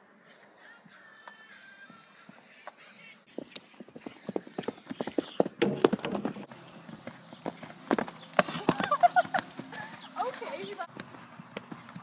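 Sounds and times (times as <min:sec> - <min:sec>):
horse hooves thudding on grass: 0:01.8 - 0:12.0.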